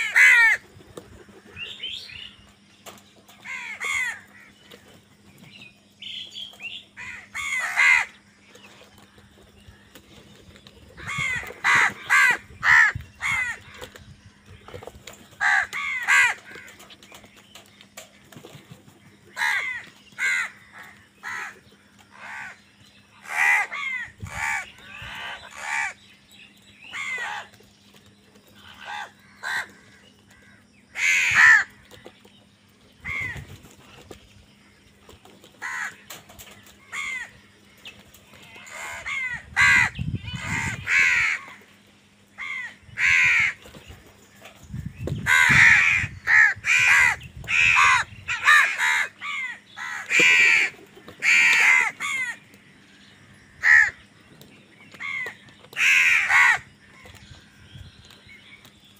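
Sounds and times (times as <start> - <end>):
crows cawing: 0.0 - 1.8, 3.4 - 4.8, 7.0 - 9.9, 11.0 - 14.5, 15.3 - 17.0, 19.3 - 26.0, 26.9 - 27.6, 28.5 - 32.2, 33.0 - 33.6, 35.6 - 41.8, 42.4 - 43.7, 45.2 - 54.1, 55.0 - 57.6.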